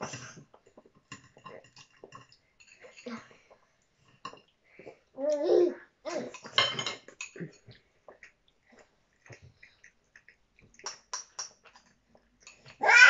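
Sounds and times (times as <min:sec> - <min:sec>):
spoons and forks clinking on bowls: 0:06.3 - 0:07.7.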